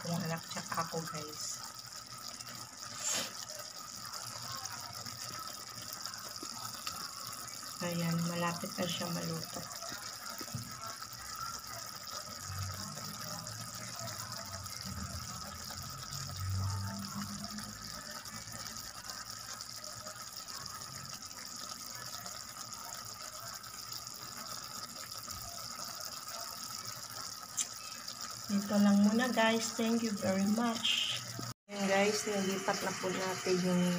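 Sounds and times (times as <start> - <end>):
sauce bubbling and sizzling: 0.0 - 33.9.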